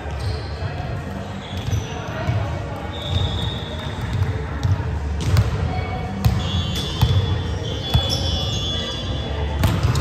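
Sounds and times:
sneakers squeaking on court: 1.4 - 2.4, 3.0 - 10.0.

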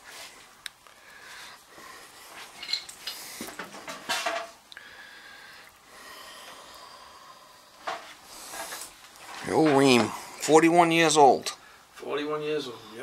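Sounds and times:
faint steady hiss: 0.0 - 13.0.

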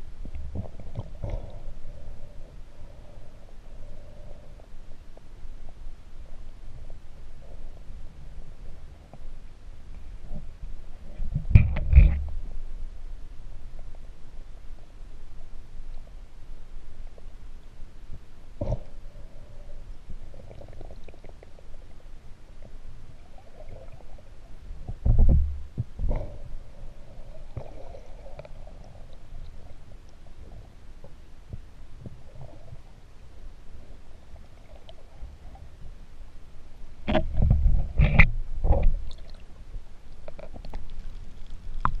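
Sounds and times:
underwater rumble of moving water: 0.0 - 42.0
dull underwater knocks: 24.8 - 26.3.

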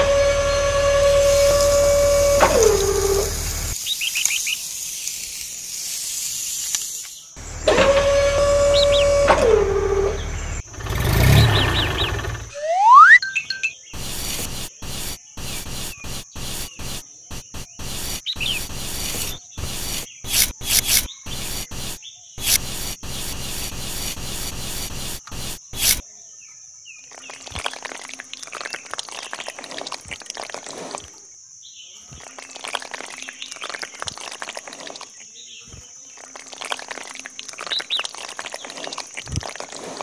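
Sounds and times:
metal shovel scraping sand: 0.0 - 3.8, 14.0 - 26.0
wet cement pouring: 0.8 - 4.0, 27.2 - 31.2, 32.2 - 35.2, 36.2 - 40.0
birds chirping: 8.4 - 9.3, 10.1 - 26.0.

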